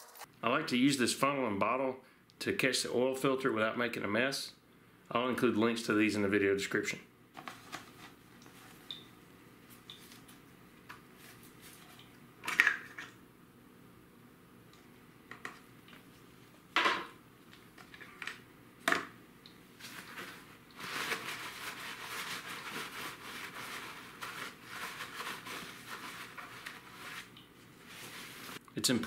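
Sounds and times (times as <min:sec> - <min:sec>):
rustling and rubbing: 0:19.8 - 0:28.6.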